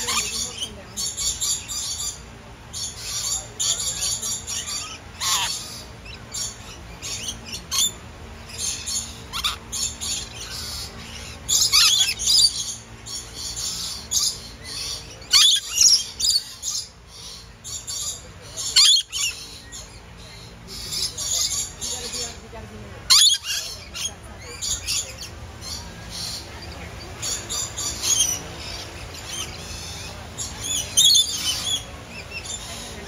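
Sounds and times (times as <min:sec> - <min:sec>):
lorikeets screeching: 0:00.0 - 0:33.0.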